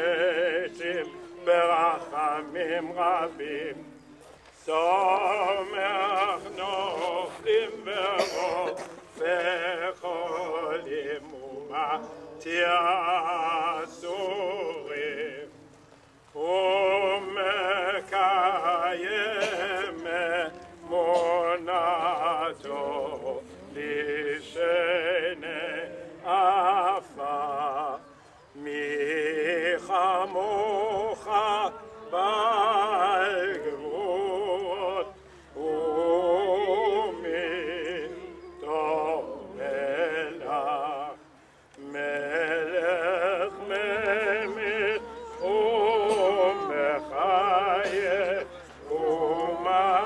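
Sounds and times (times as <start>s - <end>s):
person singing operatically: 16.4s - 50.0s.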